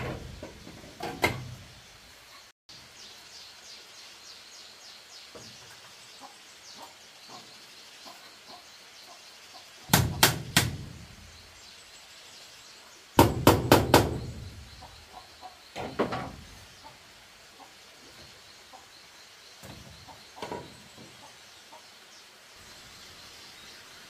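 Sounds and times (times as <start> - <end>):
tool striking bamboo: 9.9 - 10.9, 13.2 - 14.4.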